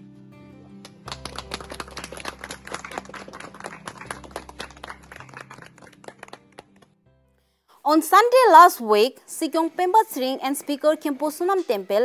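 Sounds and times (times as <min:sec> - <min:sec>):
people clapping: 0:00.8 - 0:07.0.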